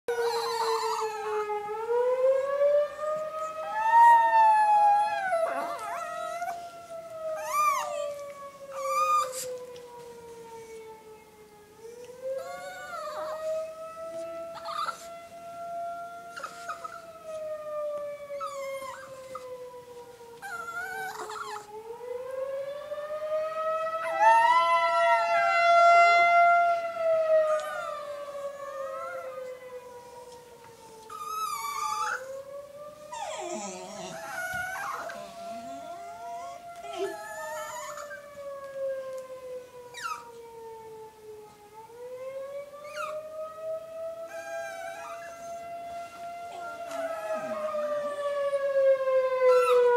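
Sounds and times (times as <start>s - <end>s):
small dog yelping: 0.1s - 1.3s, 7.4s - 9.5s, 14.6s - 15.1s, 16.4s - 17.0s, 18.4s - 19.5s, 20.4s - 21.7s, 27.5s - 28.0s, 31.1s - 32.3s, 33.1s - 35.2s, 36.3s - 38.2s, 39.9s - 40.3s, 42.8s - 43.2s
dog howling: 0.1s - 1.6s, 3.1s - 9.8s, 11.9s - 15.1s, 16.3s - 17.4s, 18.4s - 19.6s, 20.4s - 21.8s, 24.0s - 25.5s, 27.4s - 29.6s, 31.1s - 32.4s, 33.1s - 38.4s, 39.9s - 40.4s, 42.8s - 43.3s, 44.3s - 45.7s, 46.5s - 48.6s, 49.4s - 49.9s
tornado siren wailing: 0.1s - 49.9s.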